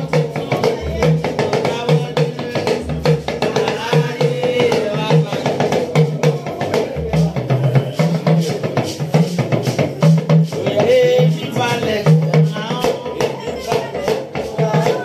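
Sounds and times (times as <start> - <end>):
drum and percussion beat: 0.0 - 15.0
person singing: 9.6 - 15.0.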